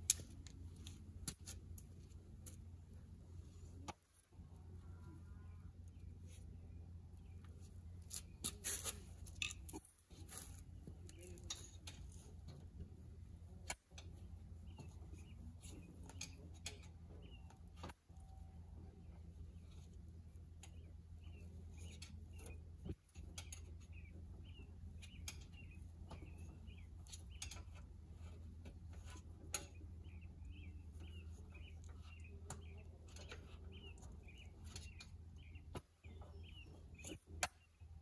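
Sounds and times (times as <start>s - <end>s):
steady low hum: 0.0s - 38.0s
small bird chirping: 20.6s - 38.0s.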